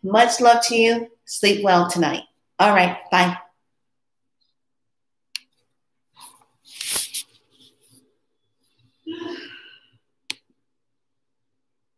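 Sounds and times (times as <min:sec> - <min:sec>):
rushing noise against microphone: 0:06.2 - 0:08.0.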